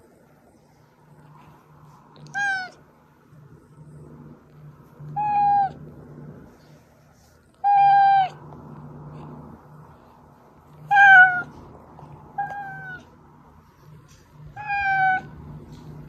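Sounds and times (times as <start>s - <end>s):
cat meowing: 2.2s - 2.8s, 5.2s - 5.8s, 7.6s - 8.4s, 10.9s - 11.6s, 12.3s - 13.1s, 14.5s - 15.4s.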